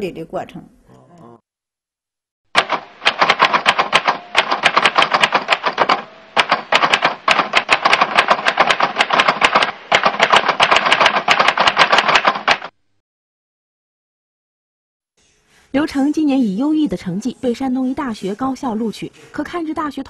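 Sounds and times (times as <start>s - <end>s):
rapid typewriter key clicking: 2.6s - 12.7s.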